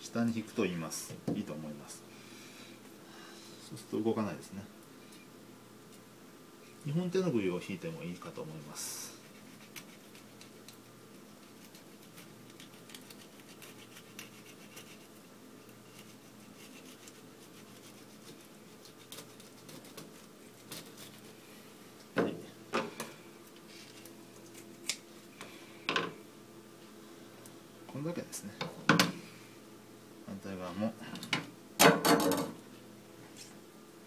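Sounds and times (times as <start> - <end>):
knife scraping fish: 9.2 - 10.7, 11.3 - 15.2, 15.8 - 21.3.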